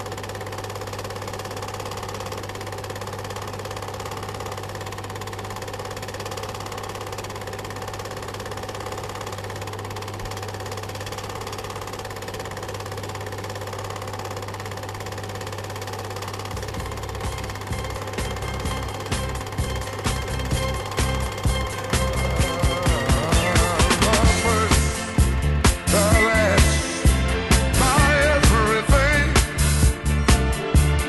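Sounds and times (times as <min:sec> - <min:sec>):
fast mechanical clatter: 0:00.0 - 0:29.9
constant low hum: 0:16.4 - 0:28.7.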